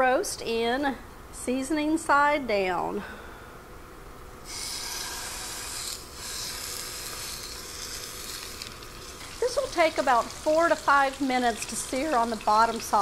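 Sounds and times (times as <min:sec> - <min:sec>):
meat sizzling in oil: 0:04.5 - 0:13.0.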